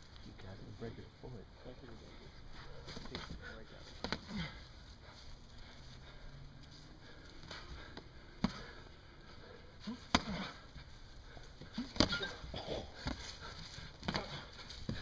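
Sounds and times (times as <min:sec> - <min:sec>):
fighters grunting: 0:02.8 - 0:04.8, 0:09.8 - 0:10.7, 0:11.4 - 0:15.0
gloved punches smacking: 0:04.0 - 0:04.6, 0:07.9 - 0:08.7, 0:09.8 - 0:10.6, 0:11.6 - 0:12.4, 0:13.0 - 0:15.0.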